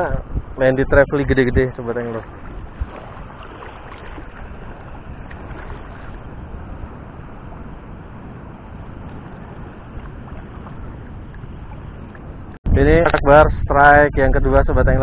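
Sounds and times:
wind on microphone: 0.0 - 15.0
small waves washing: 1.6 - 12.6.

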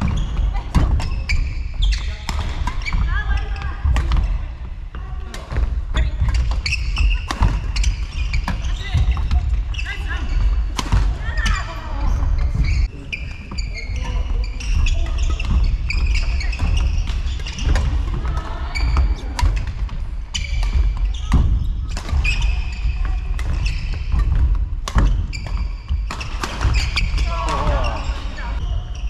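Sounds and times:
shoe squeaks on court: 0.0 - 3.6, 6.2 - 10.5, 11.3 - 17.9, 18.8 - 24.4, 25.0 - 29.0
racket hitting shuttlecock: 5.3 - 9.4, 20.4 - 27.7.

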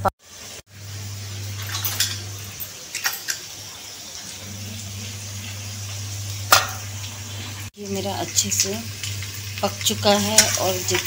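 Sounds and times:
low hum: 4.2 - 7.7.

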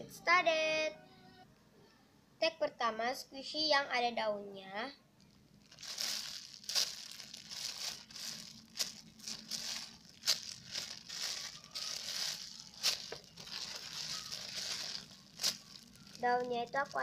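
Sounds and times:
plastic bag crinkling: 5.2 - 17.0.

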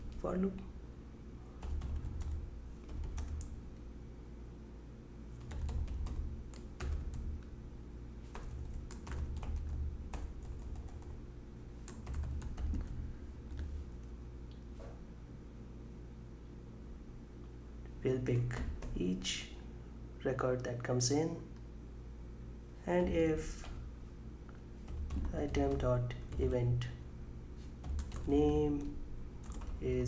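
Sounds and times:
typing on computer keyboard: 1.6 - 3.6, 5.4 - 7.4, 8.3 - 11.2, 11.9 - 13.7, 24.8 - 26.5, 27.8 - 28.3, 29.4 - 29.8.

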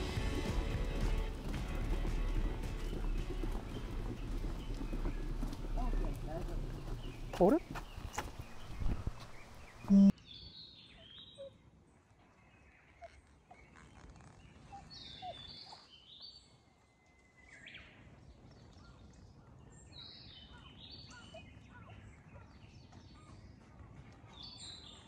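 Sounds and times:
faint bird chirping: 2.8 - 11.6.

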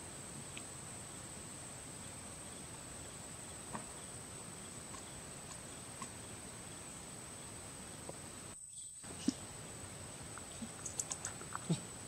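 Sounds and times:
soft clicks of leaves: 10.3 - 11.8.

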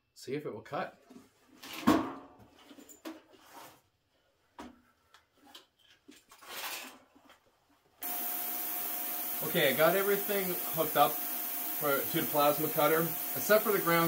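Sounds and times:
steady hiss with faint hum: 8.5 - 14.0.

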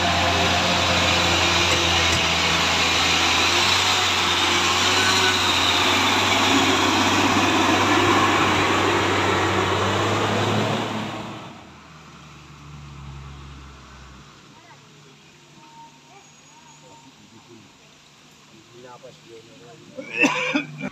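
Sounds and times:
diesel truck driving past: 0.0 - 14.4.

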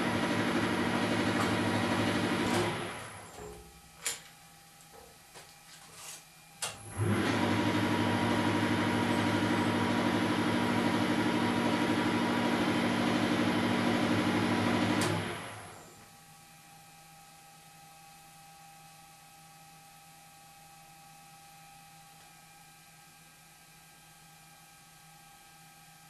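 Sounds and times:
lathe motor humming: 0.0 - 3.2, 6.9 - 15.7.

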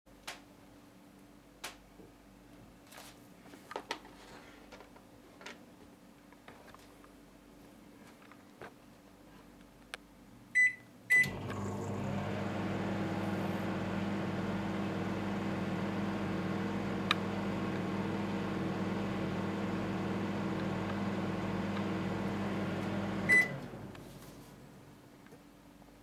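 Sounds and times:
microwave keypad beeping: 10.6 - 11.6, 23.2 - 23.6
microwave oven humming: 11.1 - 25.0.

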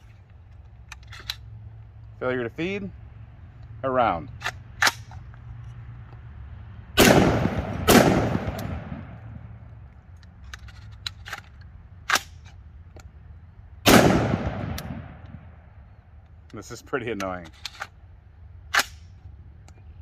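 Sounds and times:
rifle shots echoing: 7.0 - 9.6, 13.8 - 15.7.

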